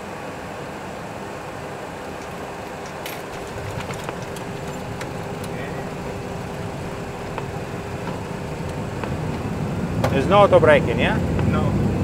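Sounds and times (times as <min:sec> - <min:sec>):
jet engine and runway rumble: 0:00.0 - 0:12.0
scattered clicks and knocks: 0:02.1 - 0:10.2.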